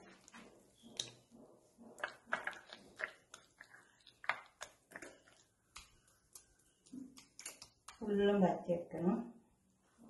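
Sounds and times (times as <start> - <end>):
hands mixing wet paste: 0.0 - 9.0.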